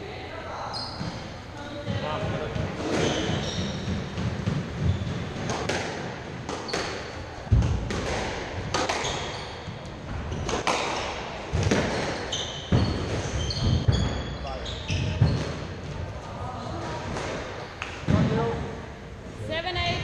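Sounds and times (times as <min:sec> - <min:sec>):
shoes squeaking on wooden floor: 0:00.6 - 0:05.7, 0:08.7 - 0:16.3
squash ball knocks: 0:01.8 - 0:14.3.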